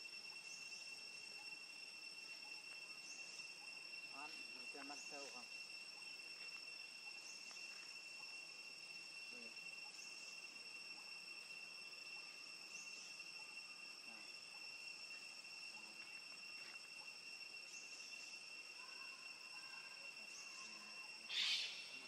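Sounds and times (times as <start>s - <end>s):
high-pitched insect drone: 0.0s - 22.0s.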